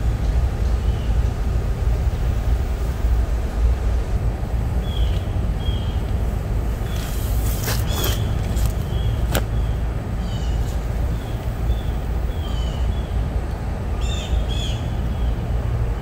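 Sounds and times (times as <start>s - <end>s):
bird chirping: 4.8s - 6.0s.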